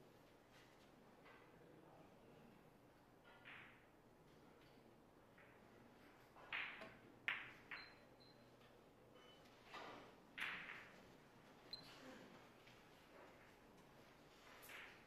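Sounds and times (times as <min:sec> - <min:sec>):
billiard balls clicking: 0:04.6 - 0:08.0
billiard balls knocking: 0:05.3 - 0:08.0, 0:10.3 - 0:11.2.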